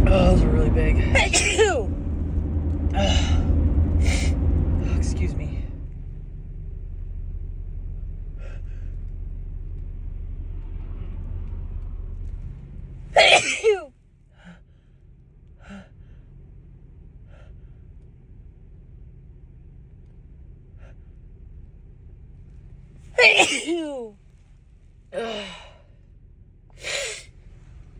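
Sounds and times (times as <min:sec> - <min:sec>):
low steady rumble: 0:00.0 - 0:27.9
woman sneezing: 0:01.2 - 0:01.8, 0:23.2 - 0:24.1.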